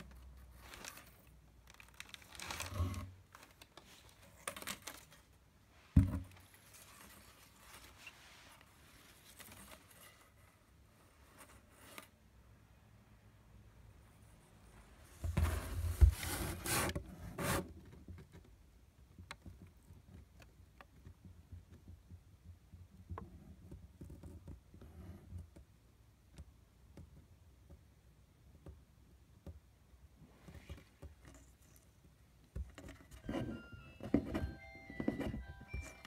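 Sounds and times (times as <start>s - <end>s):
packing paper crinkling: 0.0s - 5.4s
cardboard rubbing: 15.1s - 18.1s.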